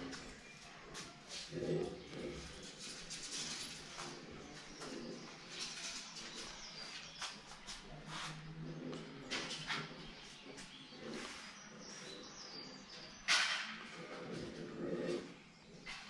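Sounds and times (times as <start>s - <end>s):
pigeon cooing: 1.3s - 7.0s.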